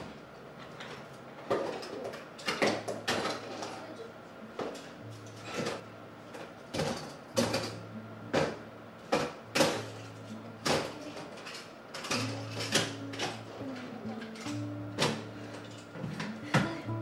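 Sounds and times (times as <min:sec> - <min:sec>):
plastic toys clattering into bins: 0:00.8 - 0:03.9, 0:06.7 - 0:07.8, 0:09.2 - 0:16.7.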